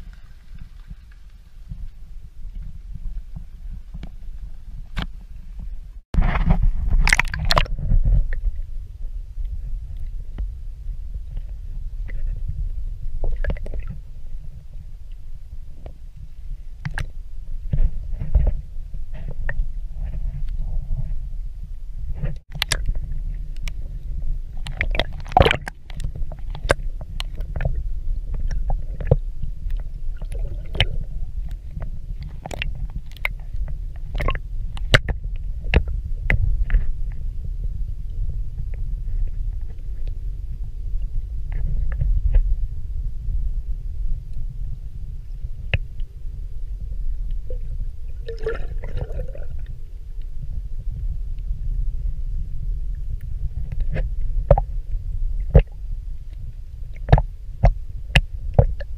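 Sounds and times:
low rumble of moving water: 0.0 - 58.9
sharp underwater clicks and pops: 6.2 - 8.5, 16.8 - 17.1, 22.2 - 23.8, 24.6 - 36.9, 53.2 - 54.7, 55.4 - 58.9.

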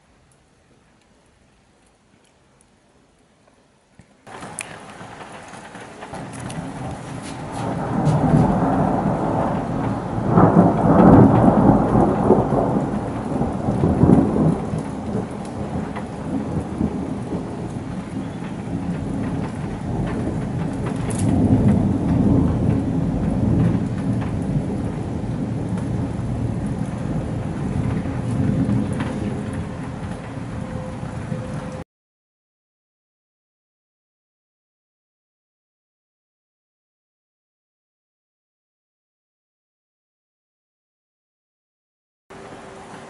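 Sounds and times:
steady rain: 0.0 - 31.8, 42.3 - 43.0
rolling thunder: 4.3 - 31.8.

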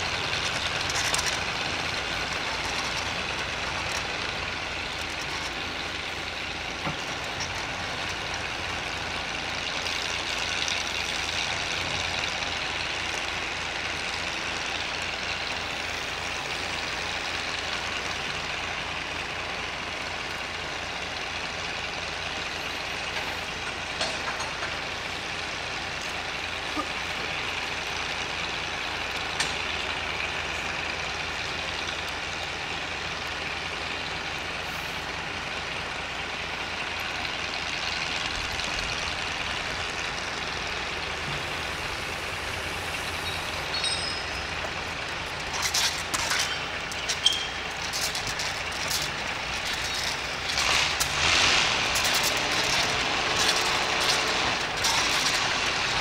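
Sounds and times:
short high squeals: 43.0 - 44.6, 46.3 - 48.3.

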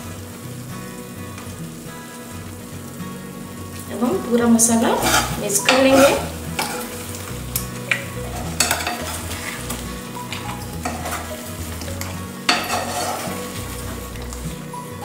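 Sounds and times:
food sizzling: 0.0 - 15.0
masher scraping and tapping pan: 5.0 - 13.7.

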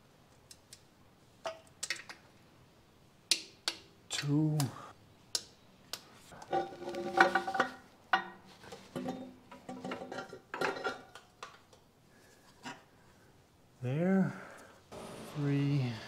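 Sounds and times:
metal clinks and knocks: 6.4 - 11.6.

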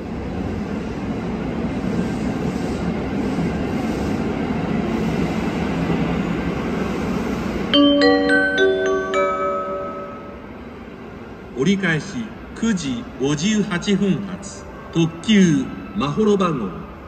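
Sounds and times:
train rumbling: 0.0 - 15.9
bell-like announcement chime: 7.8 - 10.5.

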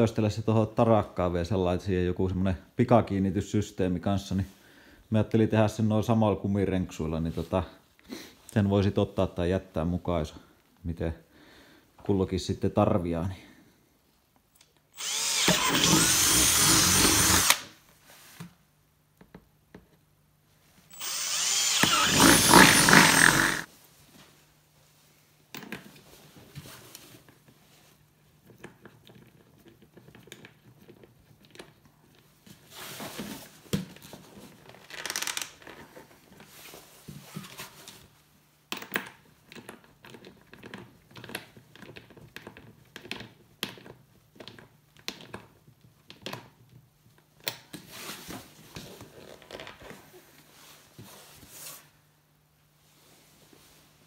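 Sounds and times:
rubber and plastic rustling: 25.9 - 38.4, 47.8 - 52.0.

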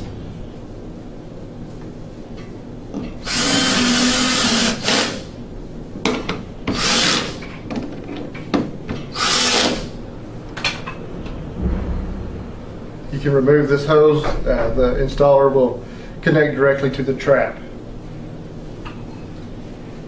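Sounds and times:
cordless drill driving screws: 3.3 - 5.2, 6.7 - 7.4, 9.1 - 9.9.

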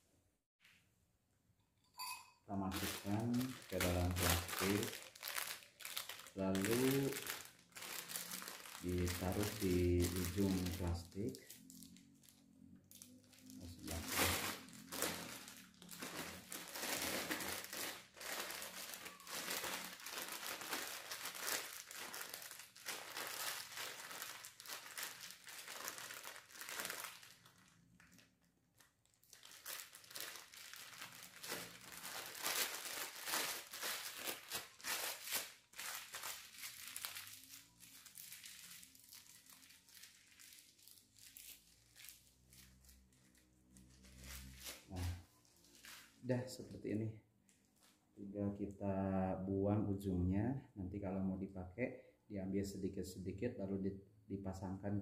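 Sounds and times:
plastic bag crinkling: 2.5 - 46.3.

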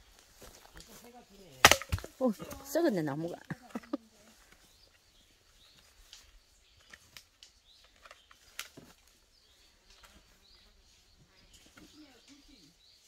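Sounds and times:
firewood knocks: 1.6 - 2.6
faint bird chirps: 4.0 - 13.0.

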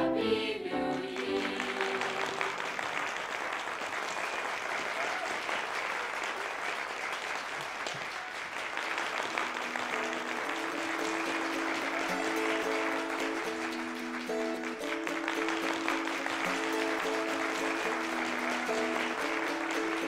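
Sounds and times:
audience applauding: 0.9 - 20.0
instrumental music with held notes: 9.4 - 20.0.

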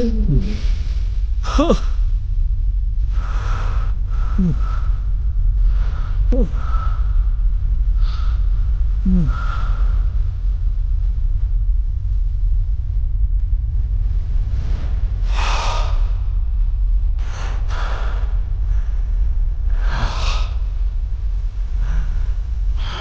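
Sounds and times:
steady low rumble: 0.0 - 23.0
man sobbing: 1.4 - 1.8, 9.1 - 9.4
gasping breaths: 3.2 - 5.0, 8.0 - 10.1.

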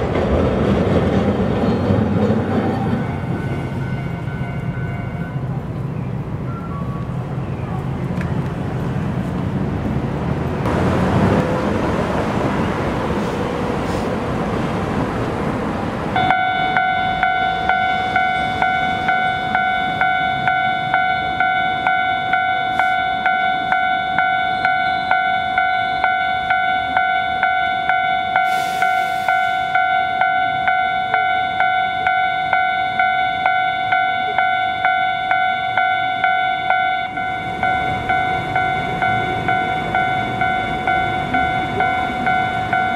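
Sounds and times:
two-tone crossing bell ringing: 1.6 - 5.6, 16.2 - 42.9
rumbling passing vehicle: 7.1 - 16.2.

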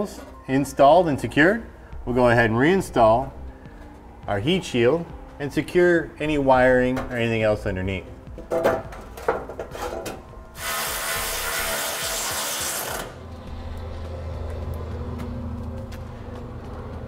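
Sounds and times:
metal heat shield clicks and knocks: 8.4 - 10.3
steady low hum: 13.1 - 17.0.

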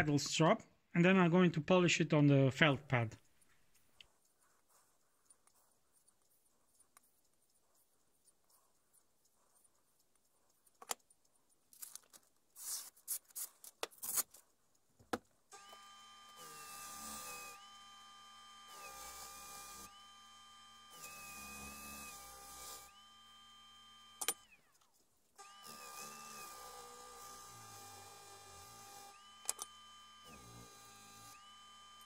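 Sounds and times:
electric disc sander whining: 15.5 - 24.7, 25.4 - 32.0.

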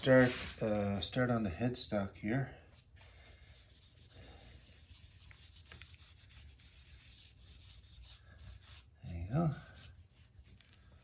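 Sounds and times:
cloth rubbing on wood: 0.0 - 0.9, 3.4 - 10.6.

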